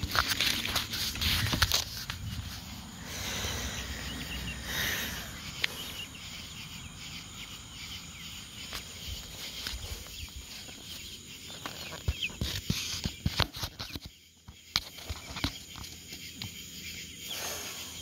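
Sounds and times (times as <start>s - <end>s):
rustling and sharp clicking: 0.0s - 2.9s, 8.6s - 16.8s
birds in a pen: 0.0s - 18.0s.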